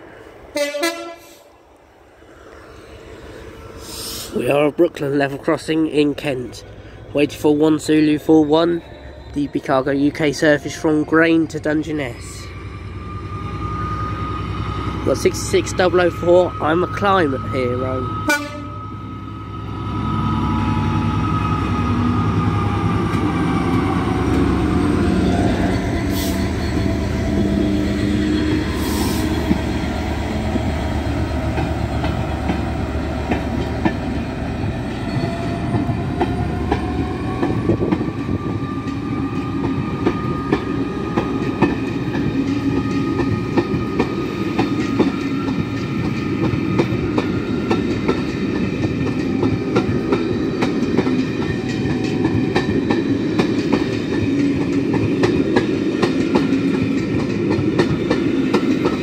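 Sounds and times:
diesel locomotive engine passing: 0:00.0 - 0:59.0
train wheels clickety-clack: 0:28.5 - 0:29.9, 0:31.3 - 0:59.0.

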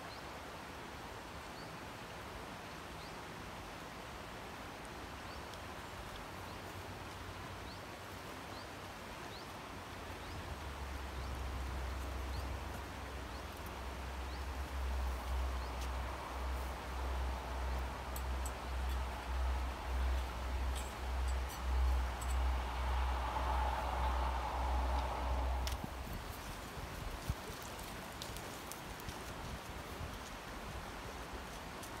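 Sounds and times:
outdoor hiss: 0:00.0 - 0:32.0
wind buffeting microphone: 0:10.7 - 0:28.3.

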